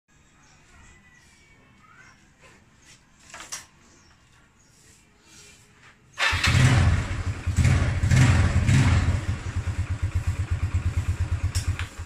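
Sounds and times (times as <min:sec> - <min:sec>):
scooter engine starting and idling: 0:06.2 - 0:12.0.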